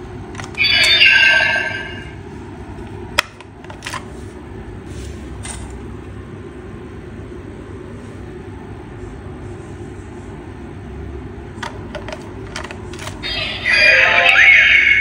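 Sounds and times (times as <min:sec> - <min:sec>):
low background hum: 0:00.0 - 0:15.0
electronic toy sound effect: 0:00.6 - 0:02.1, 0:13.2 - 0:15.0.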